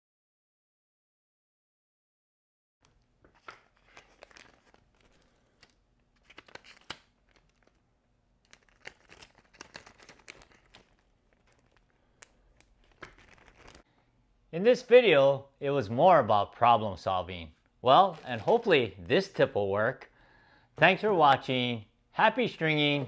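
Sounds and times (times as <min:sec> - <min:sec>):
plastic bag crinkling: 0:02.9 - 0:07.8, 0:08.4 - 0:13.9, 0:18.0 - 0:19.1.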